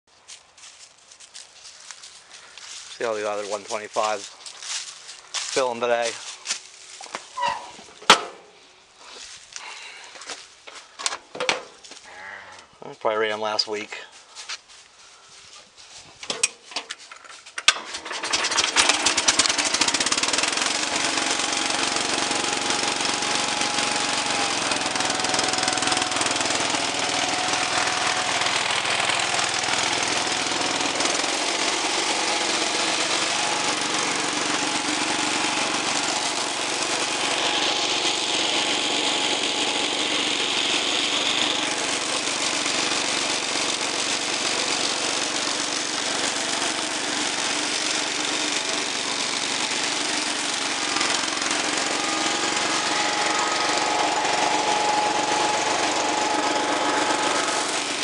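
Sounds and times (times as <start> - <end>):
engine cranking and starting: 17.6 - 58.0.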